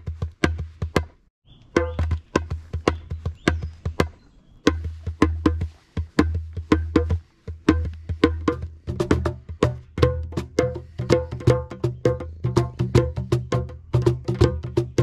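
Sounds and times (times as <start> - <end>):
djembe played with bare hands: 0.0 - 1.1, 1.7 - 15.0.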